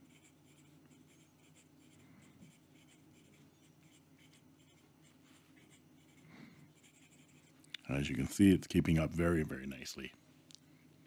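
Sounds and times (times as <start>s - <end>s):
pen nib scratching on paper: 0.0s - 7.6s.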